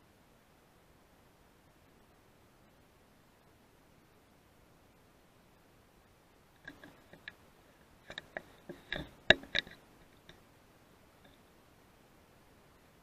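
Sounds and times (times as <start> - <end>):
rifle handling clicks and knocks: 8.1 - 10.4.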